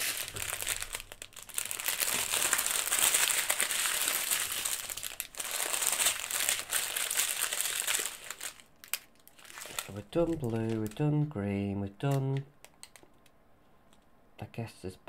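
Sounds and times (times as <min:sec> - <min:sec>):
plastic bags crinkling: 0:00.0 - 0:11.4.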